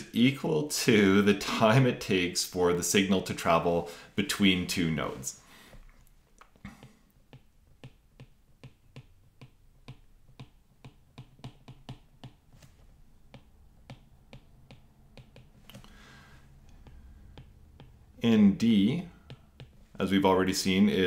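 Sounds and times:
stylus tapping on tablet screen: 0:06.4 - 0:12.6, 0:13.2 - 0:16.0, 0:16.6 - 0:18.2, 0:19.1 - 0:20.0.

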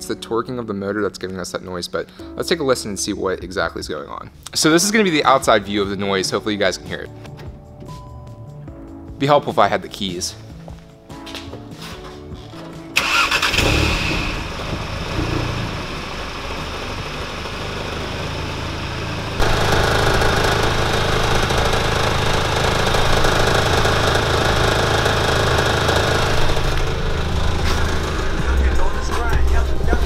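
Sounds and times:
car engine starting and idling: 0:13.0 - 0:30.0
exhaust rattling: 0:13.0 - 0:30.0.

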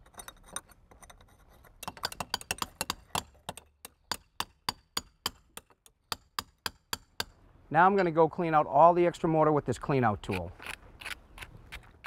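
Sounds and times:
hammer tapping chisel on mortar: 0:01.8 - 0:07.3.

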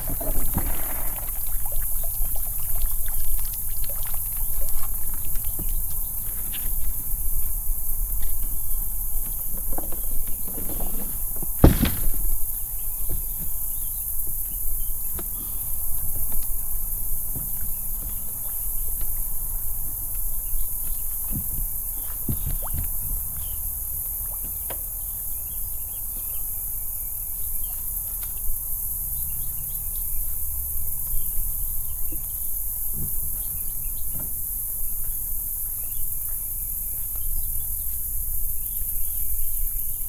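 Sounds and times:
footfalls on boat deck: 0:00.0 - 0:02.9, 0:09.2 - 0:13.8, 0:15.1 - 0:19.6, 0:20.2 - 0:23.5
insects buzzing: 0:00.0 - 0:40.0
sharp thump: 0:11.6 - 0:12.5.

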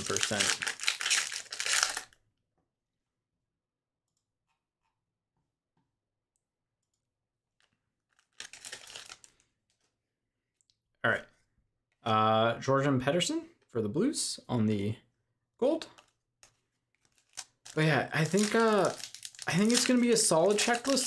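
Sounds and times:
foil wrapper crinkling and tearing: 0:00.0 - 0:02.2, 0:08.1 - 0:09.8, 0:17.0 - 0:21.0.

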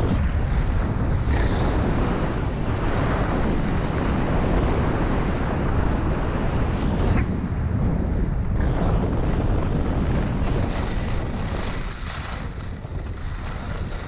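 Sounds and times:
wind buffeting microphone: 0:00.0 - 0:14.0
skis hissing over snow: 0:10.7 - 0:14.0.

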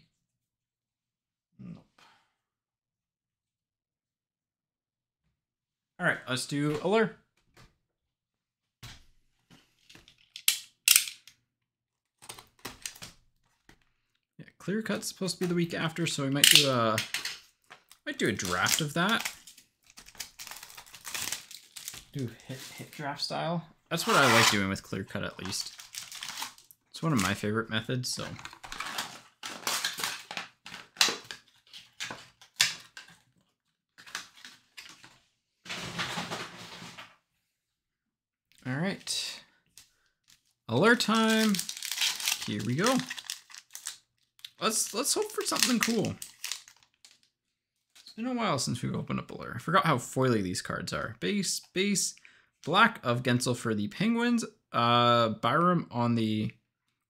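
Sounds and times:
packaging crinkling and snapping: 0:16.4 - 0:22.2, 0:25.4 - 0:27.4, 0:28.2 - 0:35.2, 0:40.3 - 0:47.3.

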